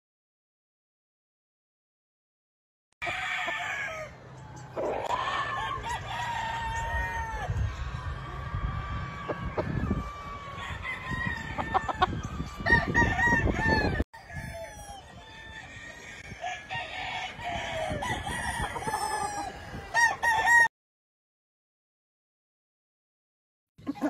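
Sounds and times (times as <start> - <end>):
roosters crowing: 3.0 - 20.7
chickens clucking: 4.3 - 13.4, 23.8 - 24.0.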